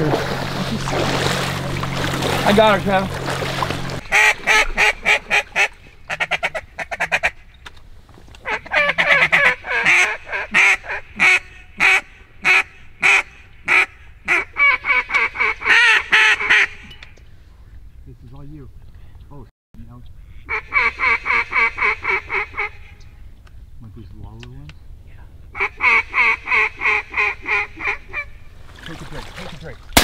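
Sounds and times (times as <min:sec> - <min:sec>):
waterfowl honking and quacking: 0:00.0 - 0:07.6, 0:08.4 - 0:17.1, 0:20.2 - 0:23.2, 0:25.5 - 0:28.5.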